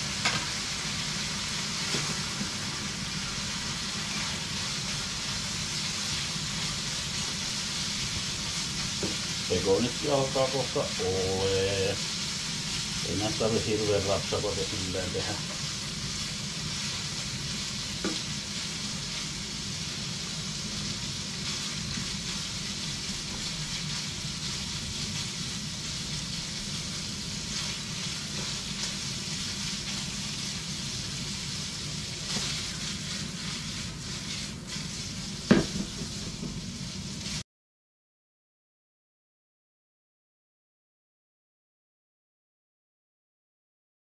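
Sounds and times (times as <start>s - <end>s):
bacon sizzling in a frying pan: 0.0s - 37.4s
spatula stirring in pan: 0.0s - 37.4s
sharp knock: 35.5s - 36.6s.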